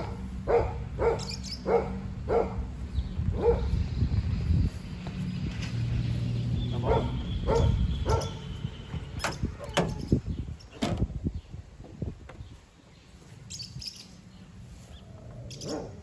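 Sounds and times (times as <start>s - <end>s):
dog barking: 0.0s - 2.7s, 3.4s - 3.8s, 6.8s - 8.4s, 15.6s - 16.0s.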